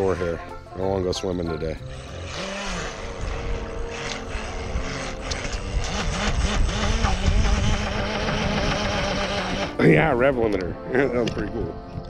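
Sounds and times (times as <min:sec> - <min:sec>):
model speedboat electric motor: 0:01.8 - 0:09.8.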